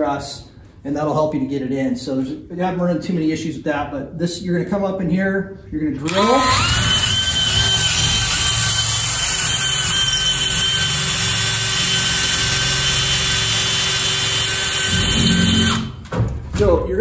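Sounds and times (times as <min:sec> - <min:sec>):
cordless drill whining: 0:06.0 - 0:16.0.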